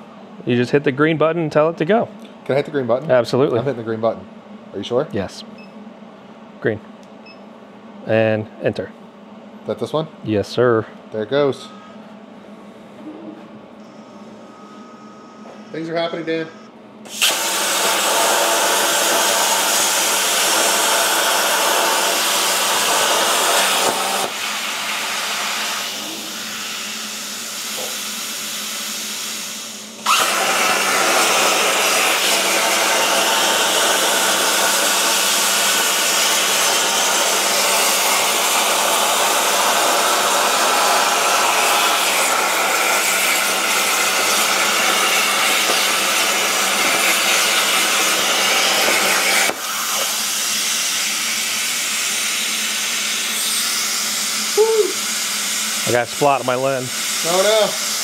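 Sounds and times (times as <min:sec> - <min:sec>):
plasma torch hissing: 0:17.1 - 0:58.0.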